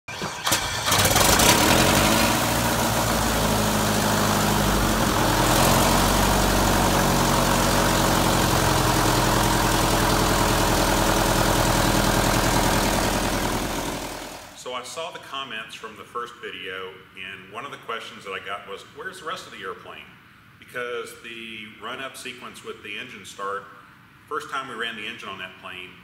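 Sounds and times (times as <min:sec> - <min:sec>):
aircraft engine starting and idling: 0:00.0 - 0:14.6
propeller turning: 0:00.4 - 0:14.6.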